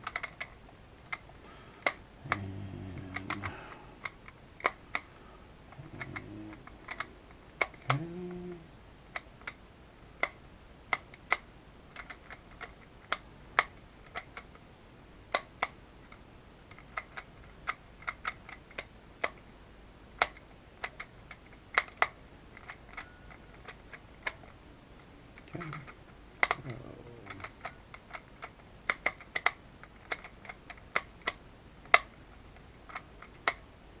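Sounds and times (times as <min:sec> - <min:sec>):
puzzle dials clicking: 0:00.0 - 0:05.1, 0:05.7 - 0:08.4, 0:25.4 - 0:32.2.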